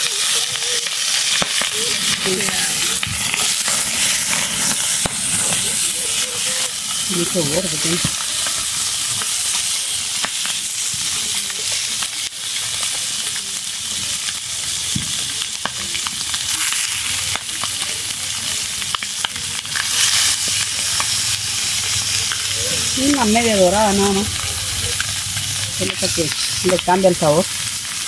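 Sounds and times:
chicken sizzling in skillet: 0:00.0 - 0:28.0
tongs turning food: 0:18.8 - 0:27.5.

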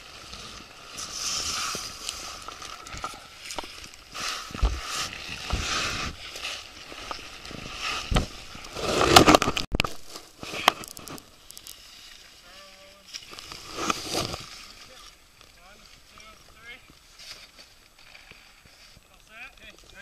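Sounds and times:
suit fabric scraping over ice: 0:00.0 - 0:09.7, 0:12.4 - 0:15.0.

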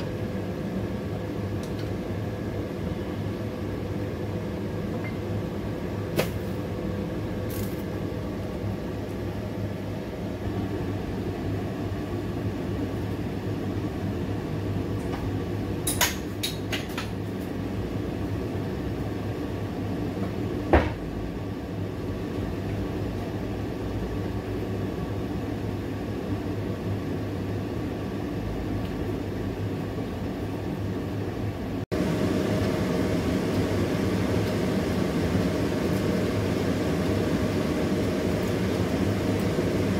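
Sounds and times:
water at a rolling boil: 0:00.0 - 0:39.9
gas burner hissing: 0:31.9 - 0:39.9.

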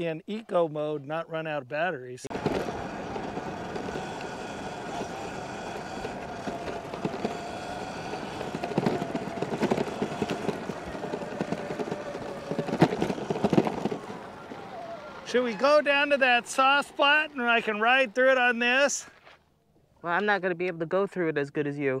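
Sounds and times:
wind: 0:00.0 - 0:22.0
sharp knocks from bumps: 0:02.3 - 0:15.3
electric motor whining: 0:02.3 - 0:18.7
tyre rumble on rough pavement: 0:02.3 - 0:19.4.

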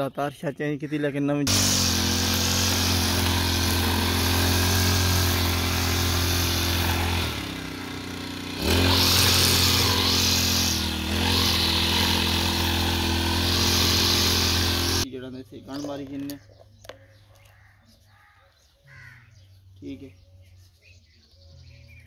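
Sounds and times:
petrol brush cutter running: 0:01.5 - 0:15.1.

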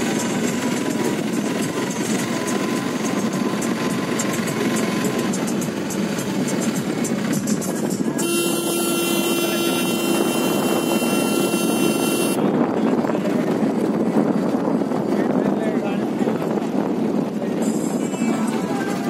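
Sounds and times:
vehicle engine and wind noise: 0:00.0 - 0:19.0
vehicle horn: 0:08.2 - 0:12.4.

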